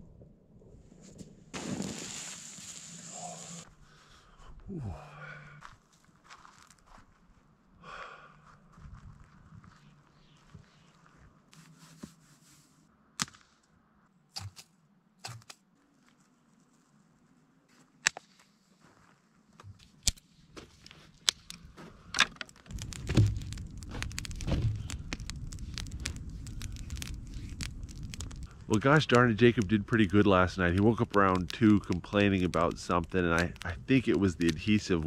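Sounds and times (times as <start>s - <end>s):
campfire crackling: 1.1s - 6.9s, 19.6s - 35.0s
dry driftwood snapping: 20.8s - 35.0s.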